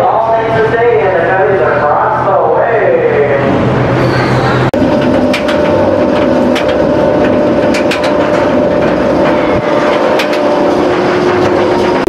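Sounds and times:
steady machine hum: 0.0 - 12.0
sharp clicks and clacks: 4.9 - 12.0.

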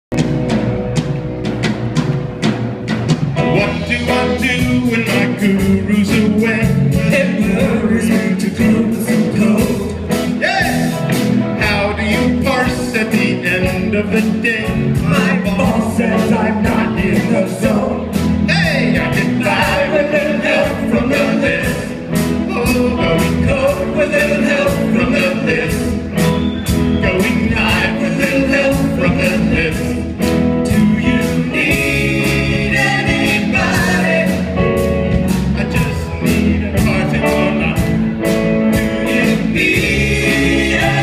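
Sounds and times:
electric guitar: 0.1 - 41.0
person singing: 3.4 - 26.0, 27.0 - 34.8, 35.5 - 38.1, 38.7 - 41.0
drum beat: 38.7 - 41.0.

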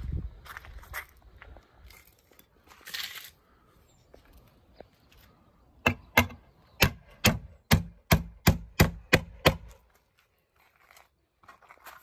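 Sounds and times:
hammer driving nail into wood: 5.8 - 9.8.

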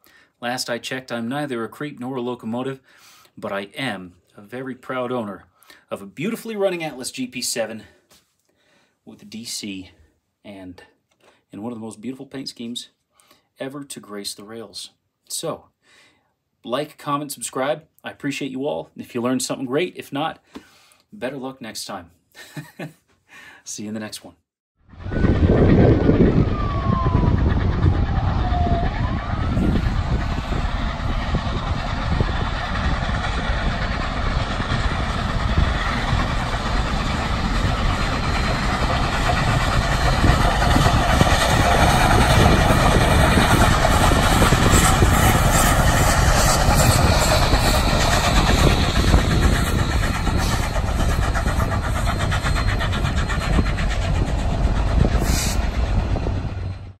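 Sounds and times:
steam locomotive exhaust rushing: 24.9 - 57.0
tone sliding down in pitch: 25.0 - 30.9.

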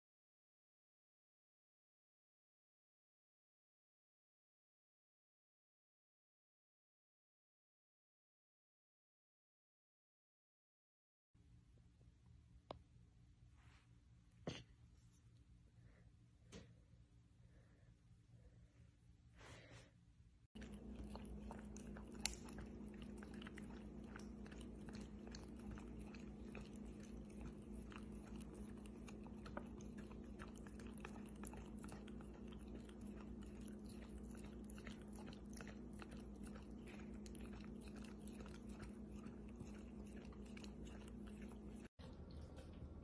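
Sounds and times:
steady low hum: 11.5 - 43.0
dog licking: 20.6 - 43.0.

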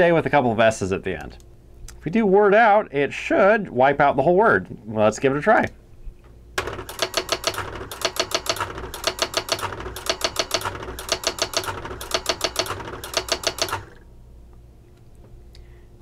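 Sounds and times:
typewriter hammer striking rapidly: 6.6 - 14.0.

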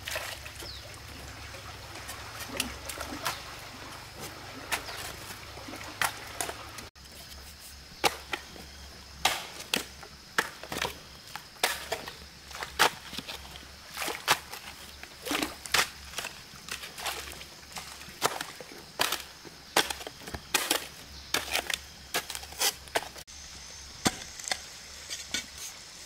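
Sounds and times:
hoe chopping stony earth: 8.0 - 8.6, 9.2 - 23.2, 24.0 - 25.6.

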